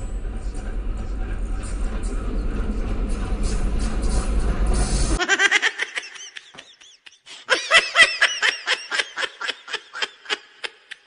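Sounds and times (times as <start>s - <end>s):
high-pitched giggling laughter: 5.2s - 11.0s.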